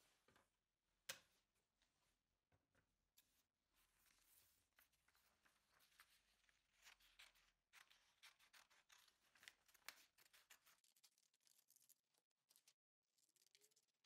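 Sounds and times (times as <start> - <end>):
faint paper rustling: 3.2 - 13.9.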